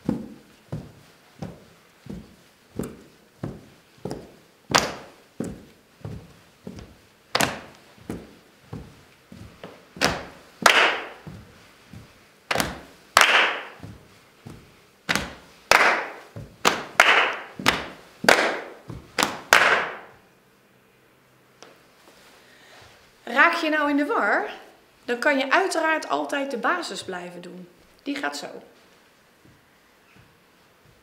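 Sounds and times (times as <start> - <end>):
hands patting chests and thighs: 0.0 - 20.1
handclaps: 10.0 - 11.2, 12.5 - 13.8, 15.1 - 20.1.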